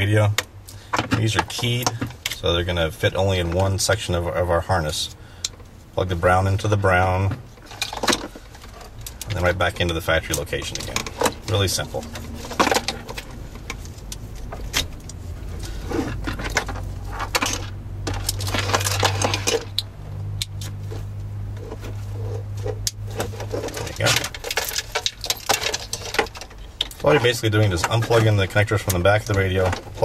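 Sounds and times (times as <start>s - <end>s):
low steady hum: 0.0s - 30.0s
plastic connectors clicking and rattling: 7.6s - 20.8s, 22.6s - 30.0s.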